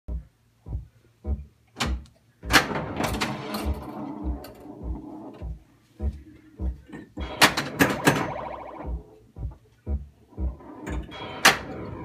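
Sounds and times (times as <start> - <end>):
low thumping pulse: 0.1 - 1.5, 2.4 - 11.2
pinball playfield rattling: 2.5 - 4.0.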